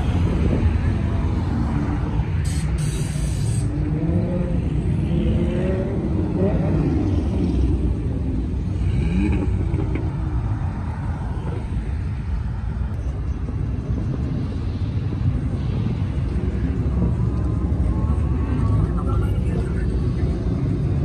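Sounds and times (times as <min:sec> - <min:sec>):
cars driving past: 0:00.0 - 0:21.0
engine revving: 0:03.6 - 0:10.2.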